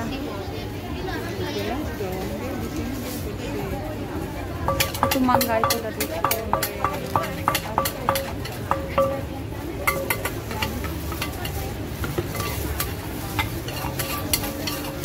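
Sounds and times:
wooden pestle knocking in mortar: 4.7 - 9.3
salad rustling in mortar: 9.9 - 15.0.

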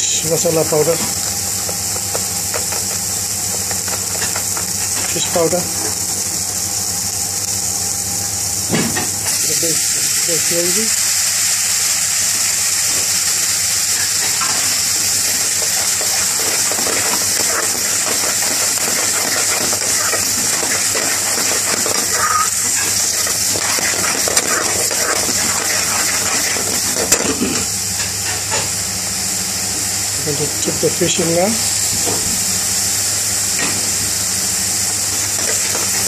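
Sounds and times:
sauce boiling and sizzling in pan: 0.0 - 30.0, 31.0 - 36.0
metal spoon scraping a pan: 15.3 - 27.7.

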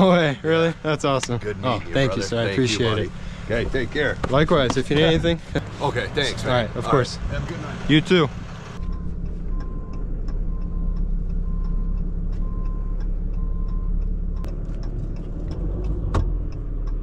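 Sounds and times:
engine running: 0.0 - 17.0
indicator flasher ticking: 8.8 - 15.2.

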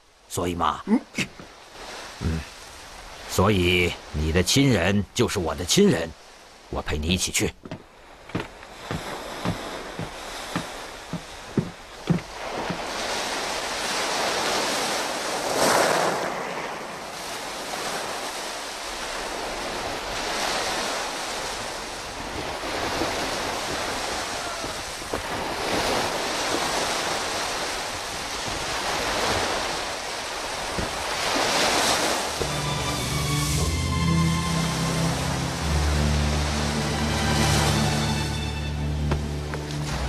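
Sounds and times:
waves crashing on rocky shore: 0.0 - 38.4
music: 32.4 - 40.0.

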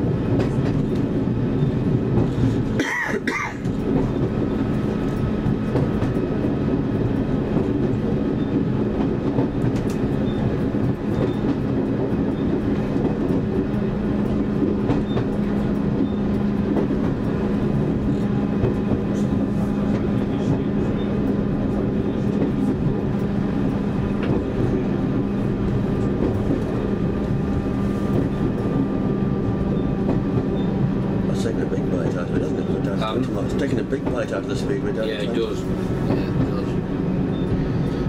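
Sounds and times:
diesel engines droning: 0.0 - 38.0.

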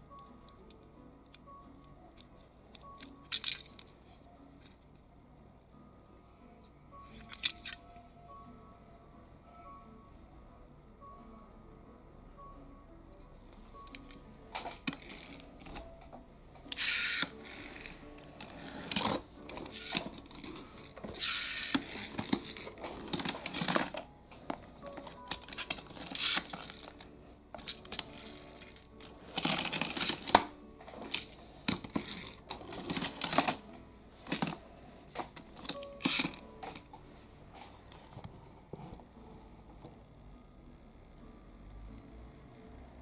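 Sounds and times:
faint music: 0.0 - 43.0
toy car clicking and rattling: 3.2 - 3.9, 14.6 - 15.8, 16.7 - 24.0, 25.0 - 33.6, 34.2 - 34.6, 35.6 - 36.8.

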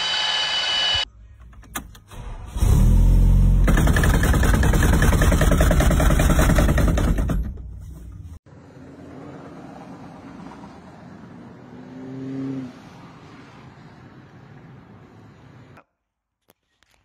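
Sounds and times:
rotary tool whining: 0.0 - 1.1
car engine running rough: 3.3 - 7.5
steering column cover rattling: 3.7 - 8.3.

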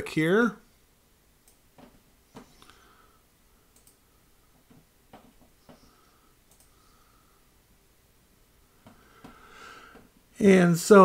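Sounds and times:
computer mouse clicks: 1.4 - 2.8, 3.7 - 4.0, 6.4 - 6.8.

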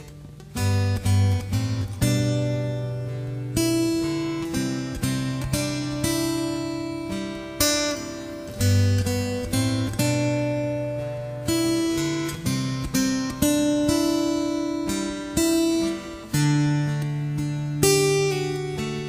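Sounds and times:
acoustic guitar strumming chords: 0.0 - 19.0.

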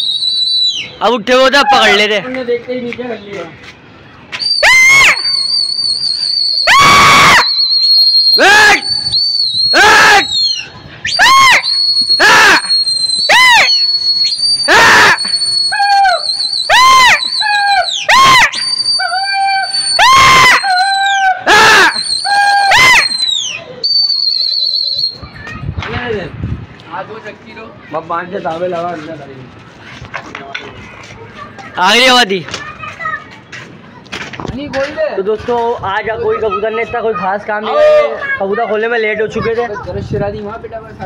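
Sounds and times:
steady high whistle: 0.0 - 1.1, 4.3 - 25.4
man shouting wordless calls: 1.0 - 2.2, 8.4 - 8.9, 9.7 - 10.3.

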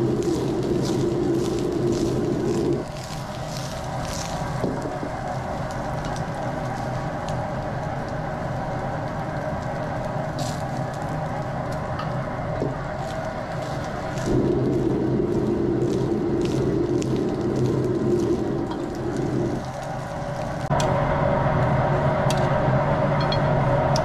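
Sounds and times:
food sizzling in hot oil: 0.0 - 20.8
gas range rumble: 0.0 - 24.0.

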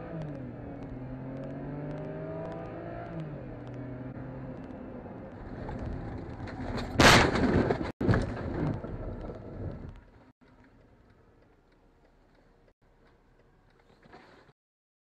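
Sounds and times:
car crash impact: 5.4 - 9.7.

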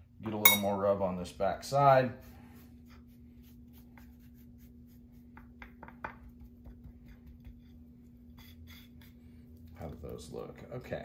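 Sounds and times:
steady low hum: 0.0 - 11.0
spoon scraping spice rub on meat: 2.2 - 5.8, 6.4 - 10.2.

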